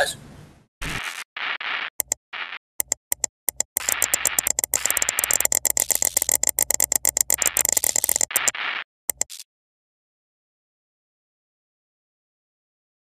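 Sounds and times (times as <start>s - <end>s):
harsh static: 0.8s - 9.4s
rapid electronic clicks: 0.8s - 9.4s.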